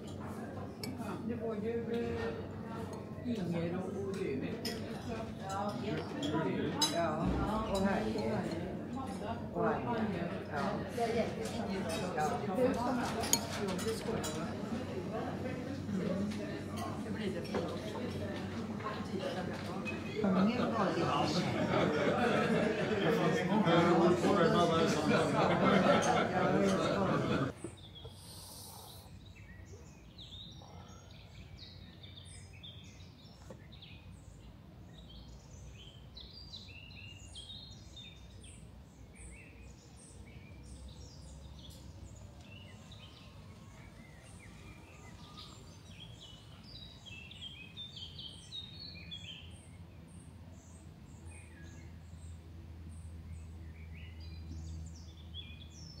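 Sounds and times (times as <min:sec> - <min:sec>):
small birds chirping: 0:27.5 - 0:56.0.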